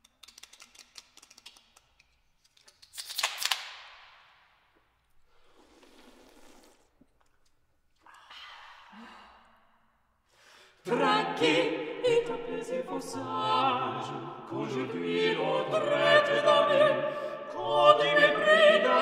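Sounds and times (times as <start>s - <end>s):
cans cracking open with fizz: 0.1s - 4.0s.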